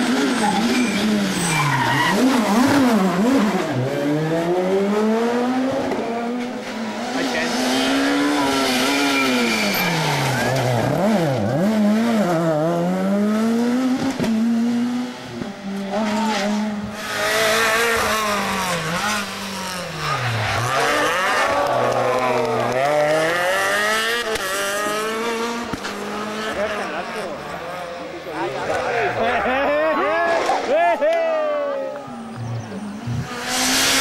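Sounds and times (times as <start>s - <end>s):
rally car passing at high revs: 0.0s - 29.7s, 32.9s - 34.0s
rally car engine braking and accelerating: 0.0s - 34.0s.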